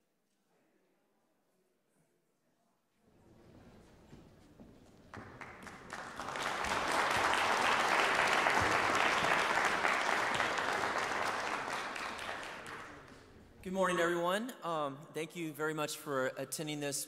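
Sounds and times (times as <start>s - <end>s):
audience applauding: 5.1s - 13.6s.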